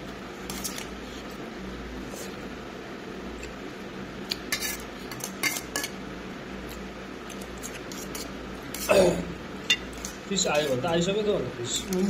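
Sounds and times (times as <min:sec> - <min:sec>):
utensil scraping a bowl: 0:04.5 - 0:05.9, 0:07.4 - 0:08.9.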